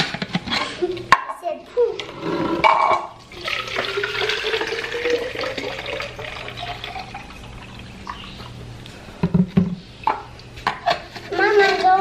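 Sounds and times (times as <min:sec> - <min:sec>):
water pouring into plastic bottle: 0:03.2 - 0:08.2.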